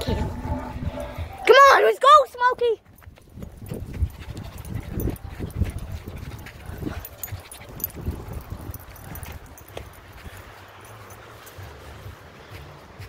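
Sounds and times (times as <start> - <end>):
dog making play noises: 3.9 - 10.8.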